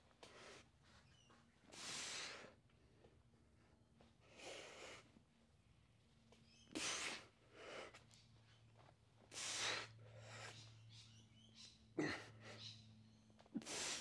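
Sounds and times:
man breathing hard: 0:01.7 - 0:05.2, 0:06.7 - 0:08.1, 0:09.2 - 0:10.8, 0:13.6 - 0:14.0.

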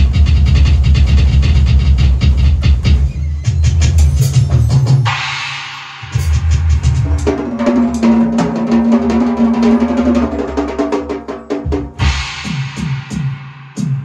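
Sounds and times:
drum kit playing fast: 0:00.0 - 0:14.0
cymbal crash: 0:04.0 - 0:08.6, 0:11.9 - 0:14.0.

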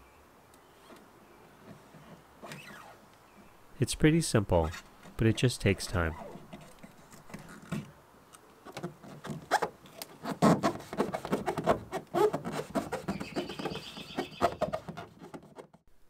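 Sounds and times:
hand rubbing patch on hull: 0:08.9 - 0:15.8.

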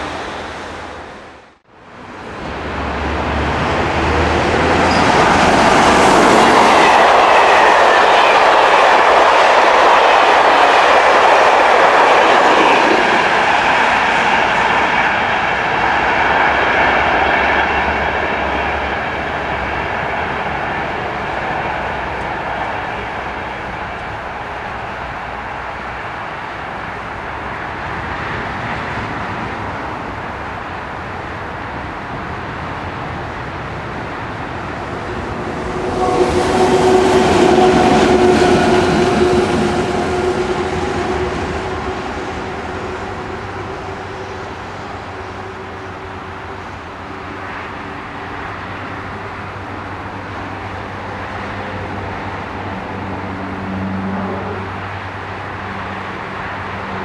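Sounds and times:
electric locomotive whine: 0:00.0 - 0:57.0
rail rumble: 0:00.0 - 0:57.0.

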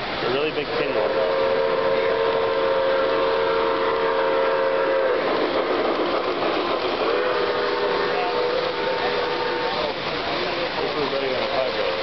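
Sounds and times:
toy steam train whistle: 0:00.9 - 0:05.3, 0:07.0 - 0:10.0.

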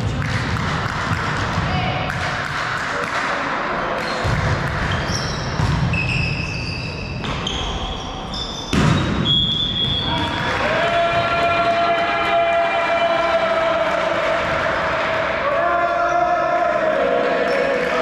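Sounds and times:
shoes squeaking on court: 0:04.8 - 0:10.1
volleyball being struck: 0:08.7 - 0:09.3
players' voices: 0:09.8 - 0:18.0.

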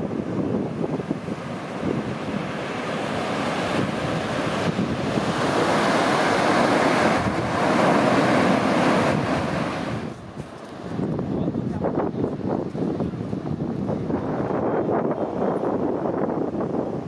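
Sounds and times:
sea waves washing: 0:00.0 - 0:11.1
wind rushing over microphone: 0:00.0 - 0:17.0.

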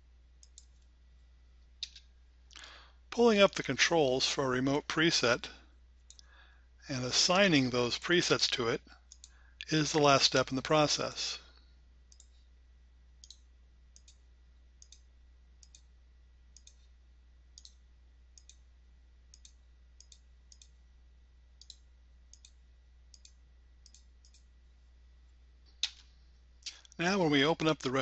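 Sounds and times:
low room hum: 0:00.0 - 0:28.0
computer mouse clicks: 0:00.4 - 0:00.9, 0:06.1 - 0:06.3, 0:09.1 - 0:09.4, 0:12.1 - 0:12.4, 0:13.2 - 0:13.4, 0:14.0 - 0:14.2, 0:14.8 - 0:15.9, 0:16.6 - 0:16.9, 0:17.6 - 0:17.8, 0:18.4 - 0:18.6, 0:19.3 - 0:20.8, 0:21.6 - 0:24.5.

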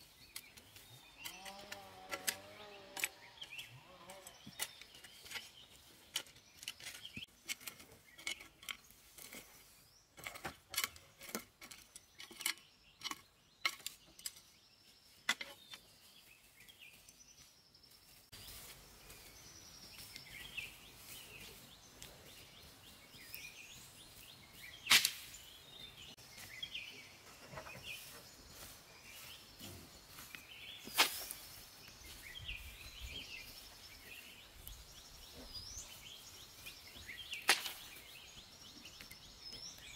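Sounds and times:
birds chirping: 0:00.0 - 0:39.9
hand scraping soil: 0:24.6 - 0:38.2
hoe chopping dry soil: 0:24.8 - 0:25.4, 0:30.6 - 0:31.5, 0:37.2 - 0:38.2.

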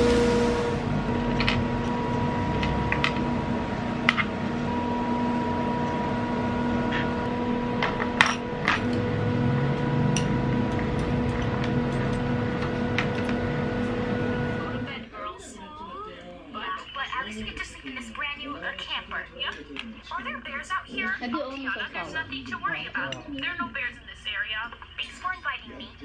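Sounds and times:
electrical hum: 0:00.0 - 0:15.2.

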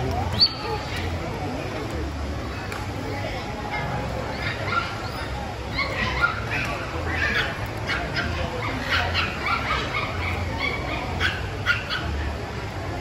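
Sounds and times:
low crowd chatter: 0:00.0 - 0:13.0
puppies yipping and barking: 0:04.3 - 0:12.3.

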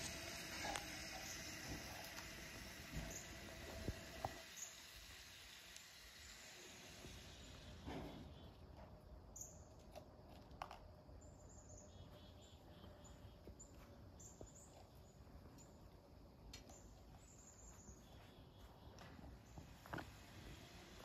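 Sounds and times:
faint high bird chirps: 0:11.2 - 0:15.8, 0:16.6 - 0:19.6.

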